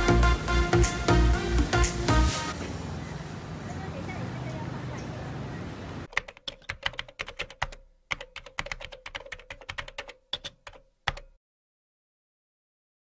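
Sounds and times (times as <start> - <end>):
busy background noise: 2.6 - 6.1
keyboard key clicks: 6.1 - 11.3.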